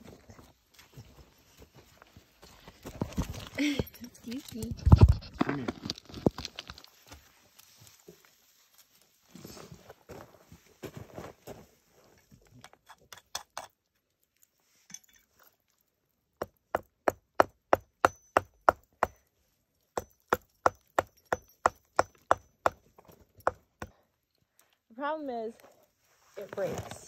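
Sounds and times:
footsteps on loose rock: 0:05.0 - 0:07.2
hammer striking rock: 0:16.4 - 0:19.3, 0:20.0 - 0:24.0
rustling: 0:25.6 - 0:27.0.

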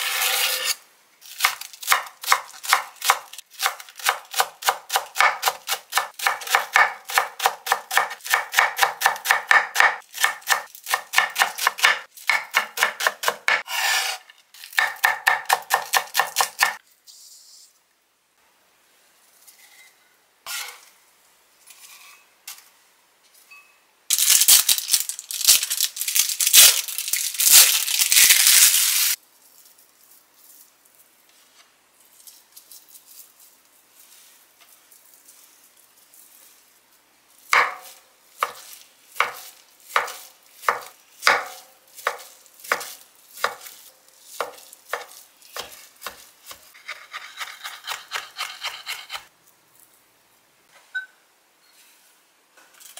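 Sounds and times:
knife chopping on wooden board: 0:01.4 - 0:13.6, 0:14.8 - 0:16.8, 0:37.6 - 0:38.6, 0:39.2 - 0:43.7.

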